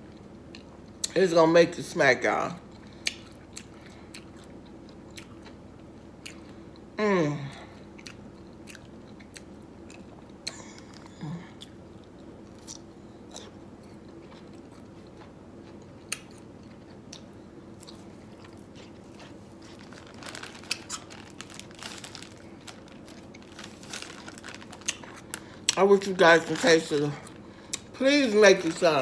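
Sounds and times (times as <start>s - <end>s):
person chewing crunchy pickle: 2.6s - 7.0s, 7.8s - 25.8s, 27.2s - 28.0s
plastic bag rustling: 17.9s - 29.0s.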